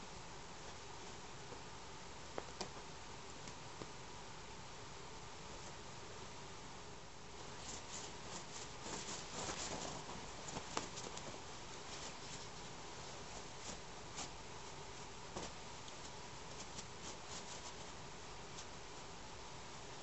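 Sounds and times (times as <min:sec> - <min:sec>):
cat paws scratching sheet: 0:07.4 - 0:19.1
fabric rustling: 0:07.4 - 0:19.1.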